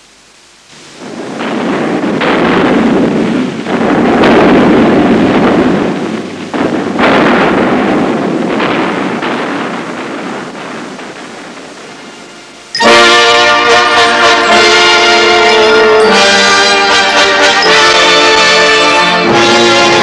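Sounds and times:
heavy rumbling explosions: 0:00.7 - 0:20.0.

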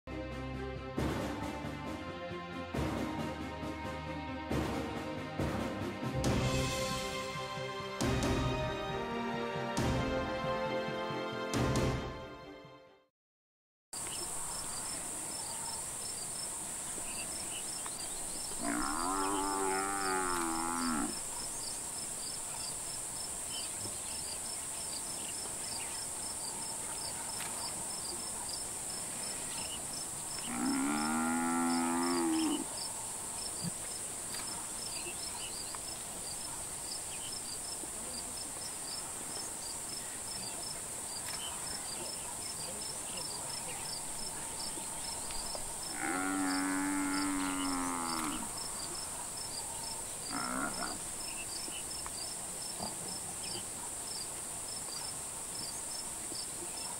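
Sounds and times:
high insect hiss: 0:14.0 - 0:56.9
insect chirping: 0:14.0 - 0:56.9
buffalo bellowing: 0:18.6 - 0:21.2, 0:30.5 - 0:32.7, 0:45.9 - 0:48.5, 0:50.3 - 0:51.0.

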